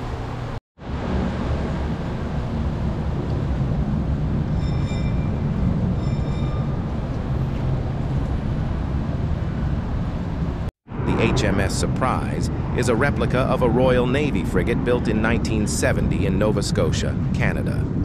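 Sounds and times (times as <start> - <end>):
high-pitched squeals: 4.4 - 8.6
low rumble with hiss: 6.8 - 18.0.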